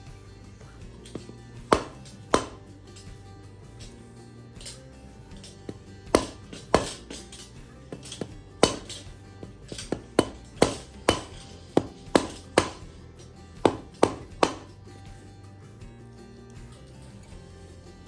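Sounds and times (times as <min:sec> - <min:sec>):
background music: 0:00.0 - 0:18.0
mallet striking cleaver: 0:01.0 - 0:03.2, 0:04.6 - 0:14.8.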